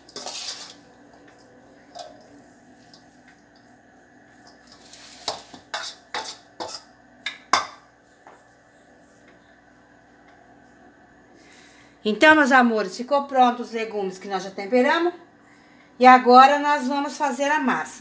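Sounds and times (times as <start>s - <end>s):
metal utensil scraping steel bowl: 0.0s - 0.8s, 4.7s - 6.9s.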